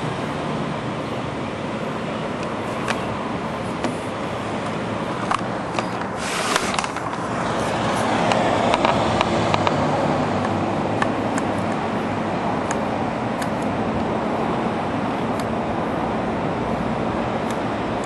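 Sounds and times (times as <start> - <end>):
distant engines rumbling: 0.0 - 18.0
brief hiss: 6.2 - 6.9.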